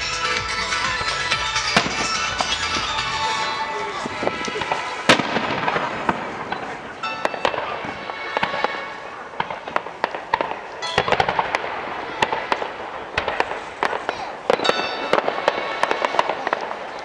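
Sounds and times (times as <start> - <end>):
music playing: 0.0 - 5.9
fireworks bangs and crackles: 0.8 - 17.0.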